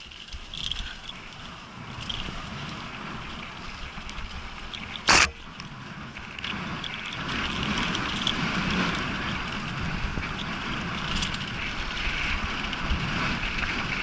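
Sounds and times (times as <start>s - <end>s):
bike rattles and clicks: 0.0s - 14.0s
bike tyres rolling on dirt: 0.0s - 14.0s
short very loud noise: 5.1s - 5.4s.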